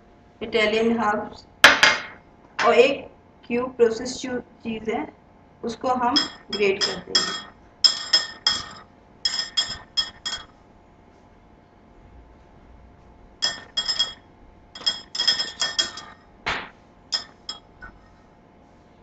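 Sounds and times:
metal grater clinking on glass bowl: 6.2 - 10.5, 13.4 - 14.2, 14.8 - 16.2, 17.1 - 17.7.

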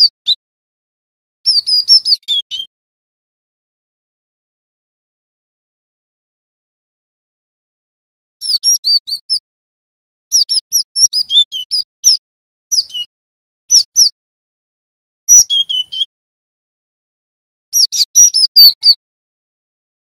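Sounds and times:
bird whistled calls: 1.5 - 2.7, 8.4 - 9.4, 10.3 - 13.1, 13.7 - 14.2, 15.3 - 16.1, 17.8 - 19.0.

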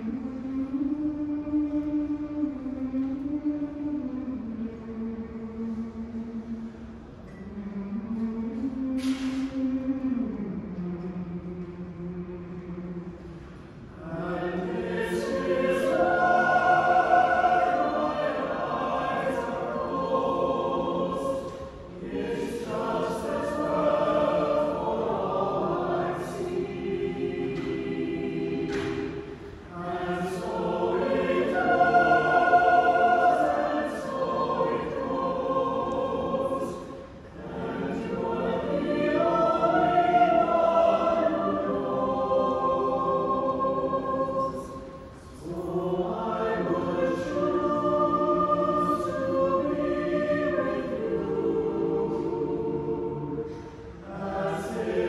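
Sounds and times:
choir singing a cappella: 0.0 - 55.0.

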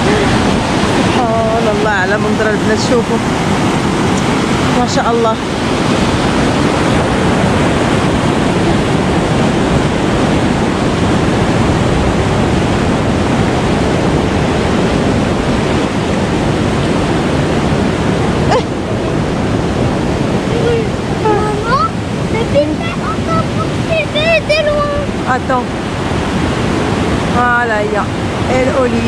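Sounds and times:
river water rushing over weir: 0.0 - 29.0.

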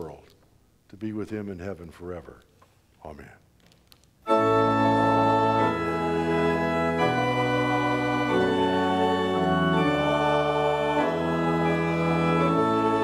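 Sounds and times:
organ playing slow chords: 4.2 - 13.0.

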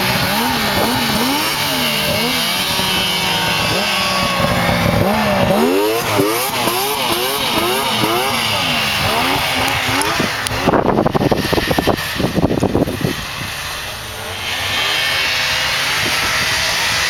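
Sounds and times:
rough uneven rushing noise: 0.0 - 17.0
snowmobile engines passing: 0.0 - 17.0.

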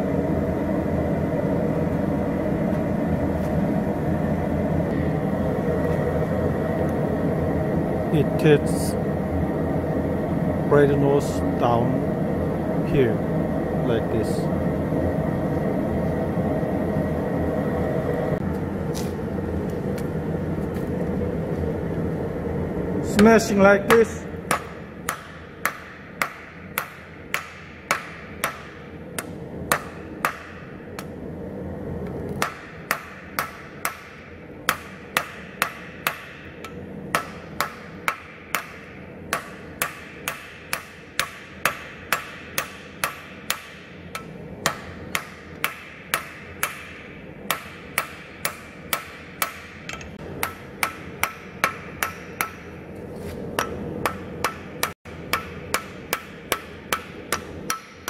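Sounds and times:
hammer striking steel on anvil: 23.1 - 31.1, 32.4 - 52.9, 53.5 - 58.0.

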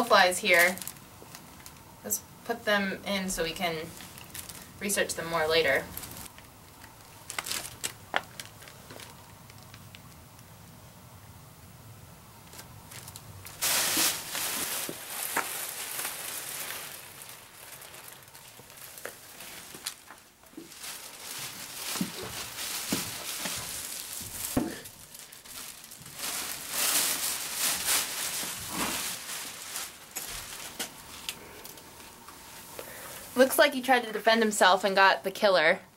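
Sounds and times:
plastic bags rustling: 0.0 - 1.9, 3.3 - 10.3, 12.4 - 34.0.

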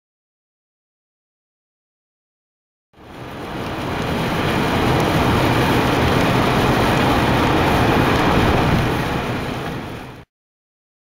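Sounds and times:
car road and wind noise: 3.0 - 10.3.

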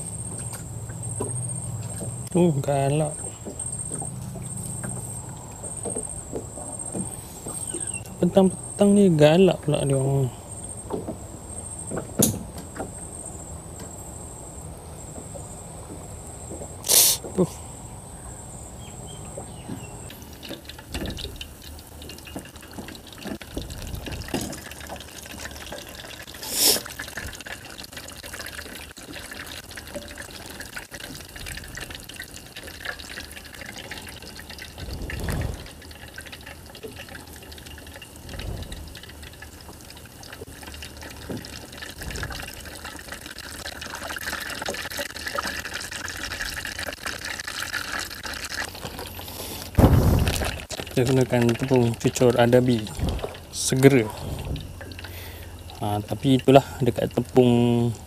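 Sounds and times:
food sizzling in oil: 20.0 - 41.8.

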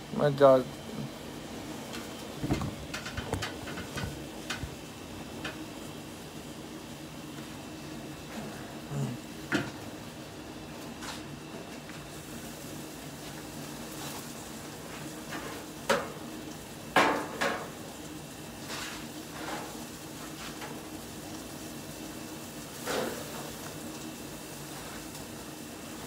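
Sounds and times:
metal clanks on grill: 1.9 - 4.7, 9.5 - 9.8, 15.2 - 17.9, 18.6 - 20.9, 22.7 - 23.8.

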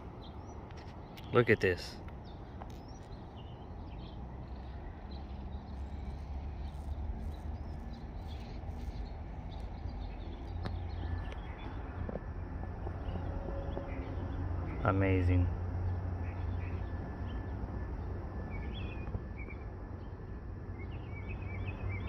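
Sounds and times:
faint bird chirps: 0.2 - 12.0.

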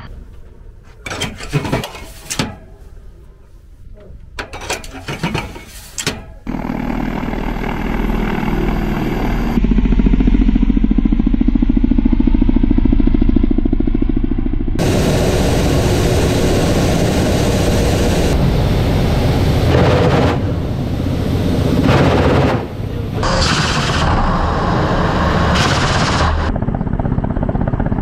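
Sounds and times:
metal clanks and knocks: 1.0 - 2.8, 4.4 - 6.4
helicopter rotors beating: 6.4 - 28.0.

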